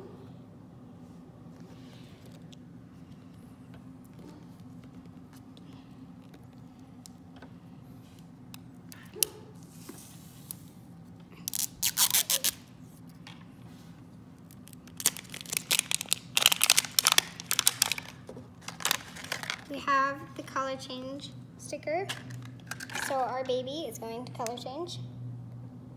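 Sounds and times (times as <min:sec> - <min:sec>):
wrapper crackling and tearing: 0:11.4 - 0:12.6, 0:14.4 - 0:19.7.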